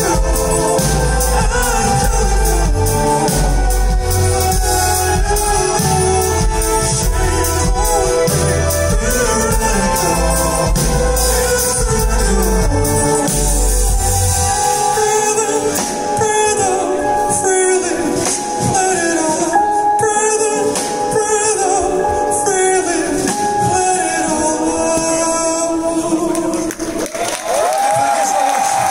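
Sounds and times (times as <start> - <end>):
deep bass: 0.0 - 15.1
cymbals: 0.0 - 16.4
live rock band playing: 0.0 - 26.3
keyboard: 0.0 - 27.2
male lead vocal: 0.0 - 27.2.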